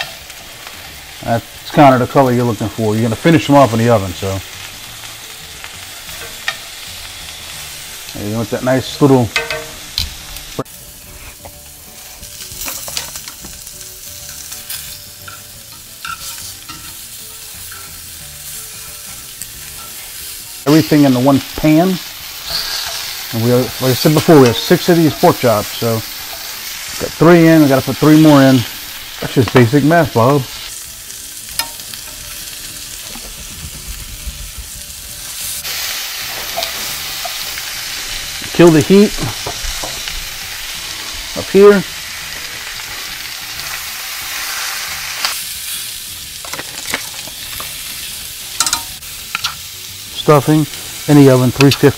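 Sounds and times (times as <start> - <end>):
meat sizzling in a skillet: 0.0 - 51.9
metal tongs scraping a pan: 3.2 - 10.2, 12.0 - 33.2, 35.4 - 51.9
metal tongs moving: 22.4 - 26.9, 36.3 - 37.6, 48.6 - 49.6.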